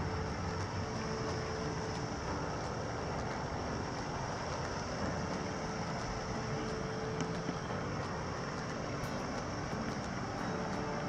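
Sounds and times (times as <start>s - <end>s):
faint steady tone: 0.0s - 11.0s.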